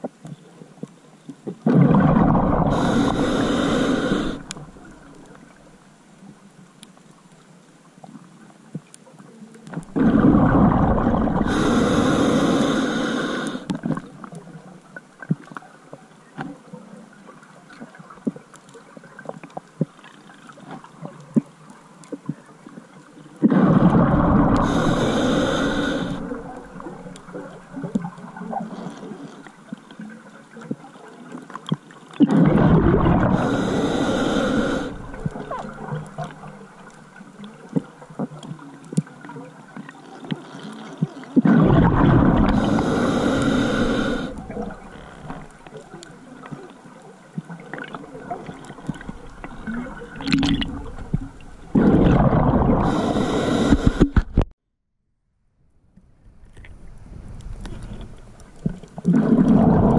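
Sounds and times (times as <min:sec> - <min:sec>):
faint clicks and crackle: 0:00.0 - 0:54.6, 0:55.7 - 0:59.9
underwater exhaled breath bubbles: 0:01.5 - 0:05.7, 0:09.7 - 0:14.6, 0:23.4 - 0:29.4, 0:32.2 - 0:38.4, 0:41.0 - 0:46.7, 0:47.4 - 0:54.4, 0:57.3 - 0:59.9.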